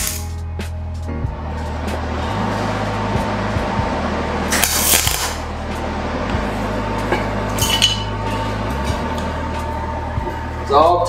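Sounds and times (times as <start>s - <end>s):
welding crackling hiss: 0.0s - 0.4s, 4.5s - 5.5s
background music: 0.0s - 11.0s.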